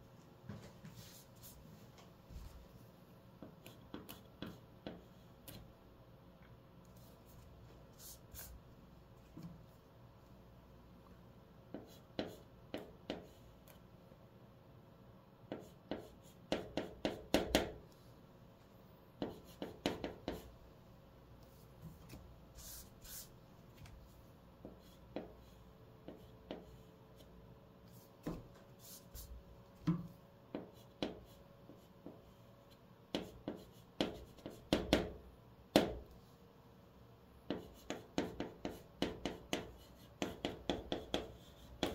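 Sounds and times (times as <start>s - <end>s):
chalk scratching on chalkboard: 19.2s - 20.5s, 22.5s - 23.4s, 27.9s - 29.4s, 33.1s - 35.0s, 37.5s - 41.9s.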